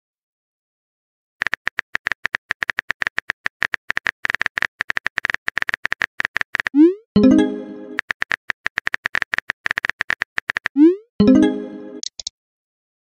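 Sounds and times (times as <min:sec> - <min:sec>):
keyboard tap clicks: 0:12.0 - 0:12.3.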